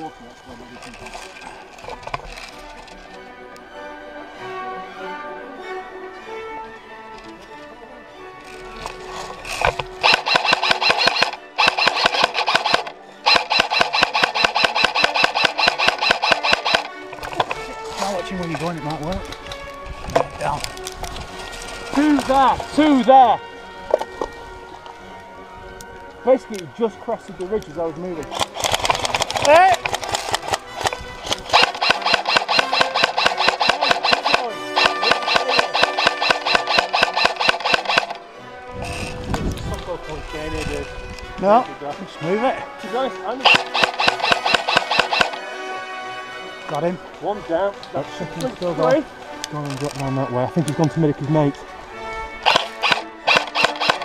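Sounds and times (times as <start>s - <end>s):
airsoft rifle automatic bursts: 10.0s - 17.0s, 28.3s - 38.2s, 43.4s - 45.4s, 52.4s - 54.0s.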